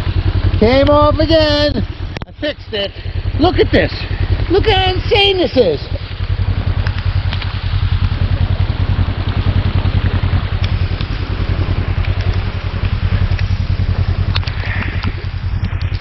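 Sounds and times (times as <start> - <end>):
vehicle engine low throb: 0.0 - 16.0
raindrops ticking on microphone: 5.9 - 16.0.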